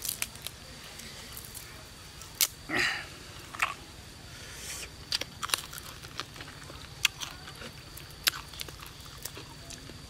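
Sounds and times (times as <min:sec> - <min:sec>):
person chewing: 0:03.5 - 0:03.8, 0:04.8 - 0:10.0.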